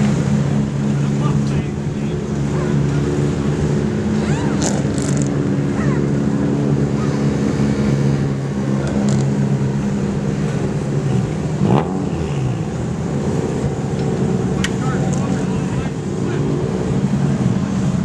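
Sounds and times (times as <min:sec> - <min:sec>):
race car engines idling: 0:00.0 - 0:18.0.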